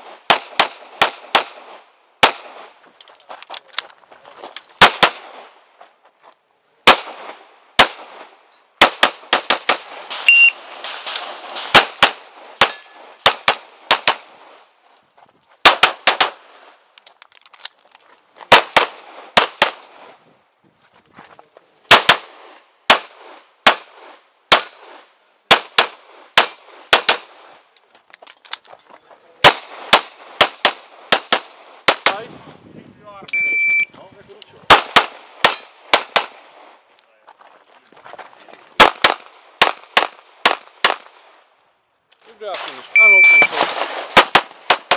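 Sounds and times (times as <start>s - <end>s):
pistol shots: 0.0s - 2.8s, 4.8s - 5.6s, 6.8s - 14.5s, 15.6s - 16.6s, 18.5s - 20.1s, 21.9s - 27.4s, 29.4s - 32.3s, 34.7s - 36.6s, 38.8s - 41.2s, 42.5s - 44.9s.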